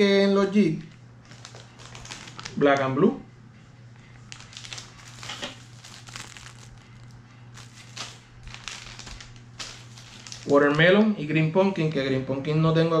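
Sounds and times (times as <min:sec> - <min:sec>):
plastic packages crinkling: 0:01.2 - 0:02.9, 0:04.2 - 0:11.0.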